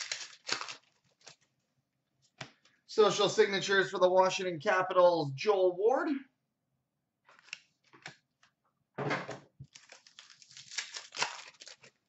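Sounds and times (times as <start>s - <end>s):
packaging rustling and crinkling: 0.0s - 1.6s, 9.6s - 12.0s
crinkling and clicking: 9.6s - 12.0s.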